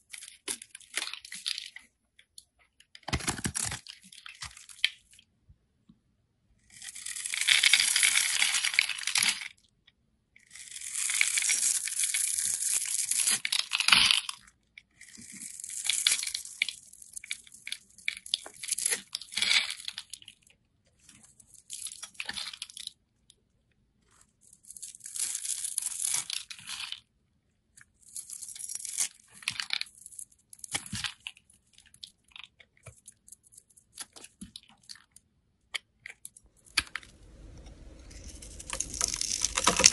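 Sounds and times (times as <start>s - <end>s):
knife scraping soap: 37.4s - 39.9s.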